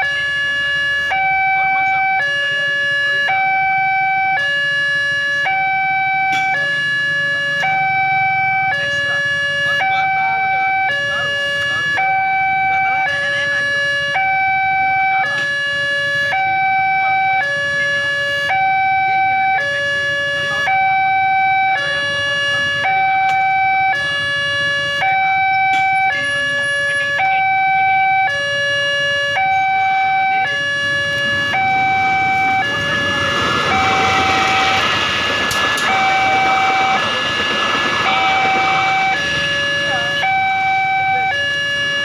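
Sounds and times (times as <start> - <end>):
two-tone crossing alarm: 0.0 - 42.0
train passing rumble: 29.8 - 42.0.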